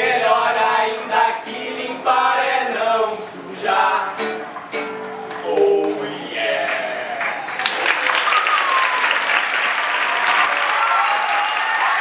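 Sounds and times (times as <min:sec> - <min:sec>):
men singing together: 0:00.0 - 0:04.5
acoustic guitar strumming: 0:03.8 - 0:05.8.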